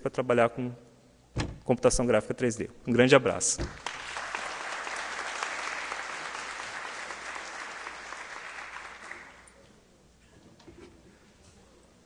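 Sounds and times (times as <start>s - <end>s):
audience applauding: 3.7s - 9.6s.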